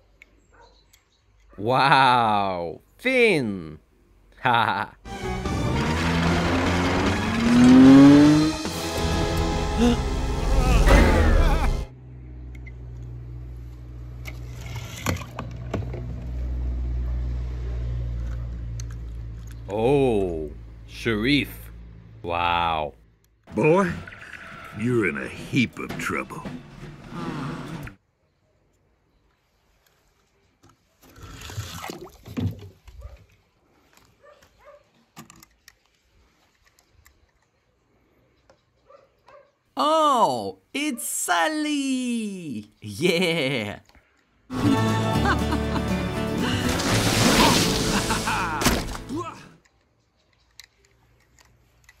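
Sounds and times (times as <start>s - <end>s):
film music and voices: 8.6s - 11.9s, 44.5s - 46.8s
water drips and small splashes: 31.1s - 33.4s
toy car splashing into water: 46.6s - 49.1s.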